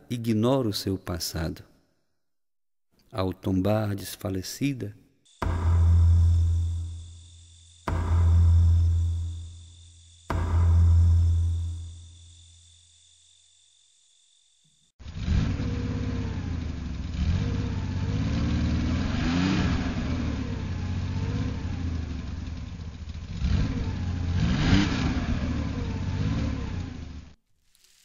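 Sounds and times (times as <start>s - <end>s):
car engine revving: 5.3s - 12.8s, 15.0s - 27.3s.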